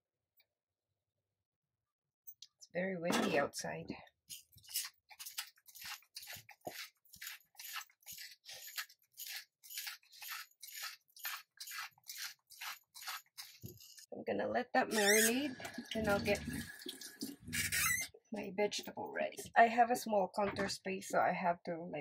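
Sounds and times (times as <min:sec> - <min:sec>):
spice shaker gritty crunching: 0:04.4 - 0:14.0.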